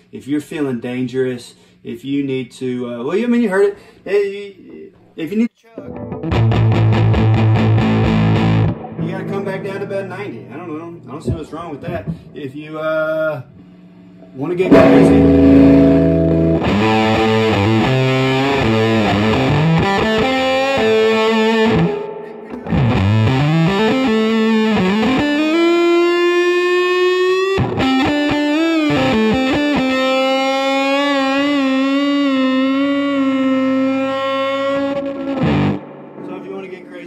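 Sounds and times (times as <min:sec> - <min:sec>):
distorted fuzz electric guitar: 0:05.9 - 0:11.4, 0:14.6 - 0:36.6.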